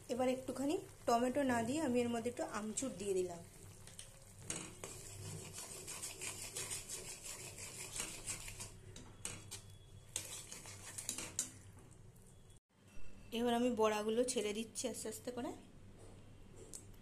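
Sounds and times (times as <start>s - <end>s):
spatula scraping a metal pan: 4.4s - 11.6s.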